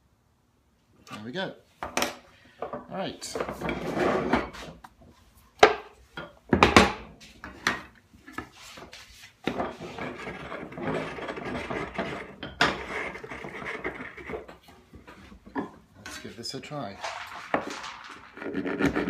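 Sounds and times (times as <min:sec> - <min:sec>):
wood rubbing and scraping on wood: 0:03.2 - 0:05.8, 0:07.2 - 0:19.0
wooden knocks and clatter: 0:17.0 - 0:19.0.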